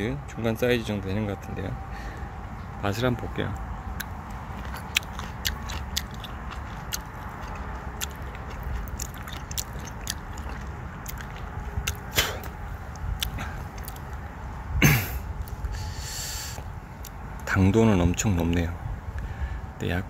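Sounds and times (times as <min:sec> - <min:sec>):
person chewing cherry: 0:03.6 - 0:14.4, 0:15.3 - 0:17.5.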